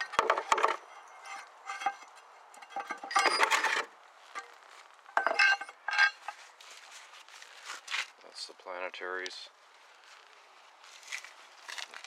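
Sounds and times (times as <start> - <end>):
rag rubbing on metal: 0.0 - 4.5
metal scraping and knocking: 0.0 - 6.4.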